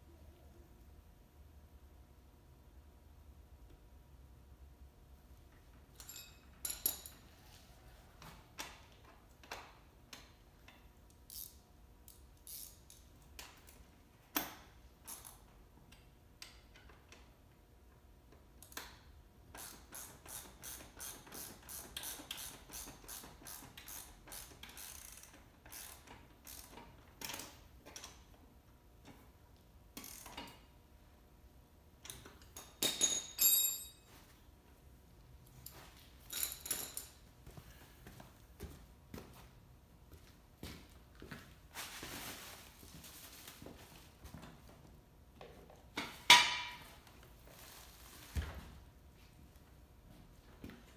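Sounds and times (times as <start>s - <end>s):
hand tools clicking and knocking: 32.0s - 33.9s.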